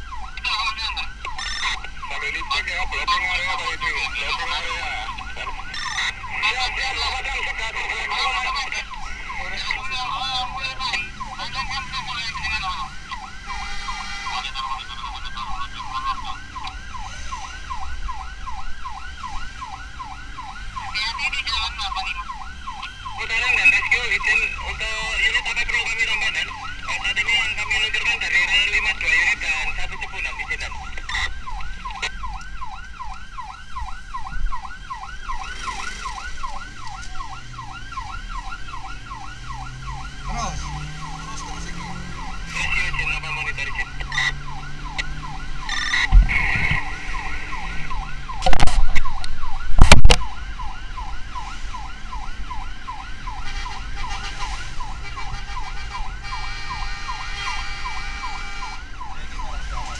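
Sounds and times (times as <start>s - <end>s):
ambulance siren yelping: 0.0s - 59.9s.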